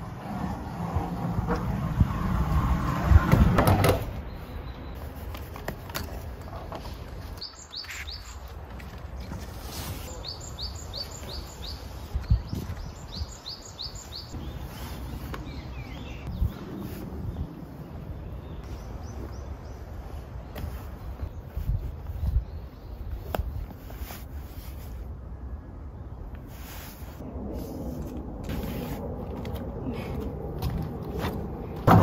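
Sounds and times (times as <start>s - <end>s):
small bird chirping: 10.1s - 16.6s.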